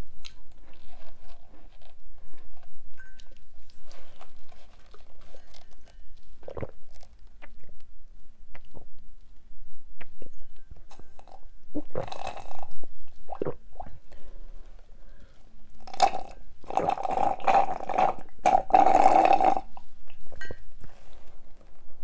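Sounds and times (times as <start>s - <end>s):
slurping through a straw: 15.9s - 19.8s.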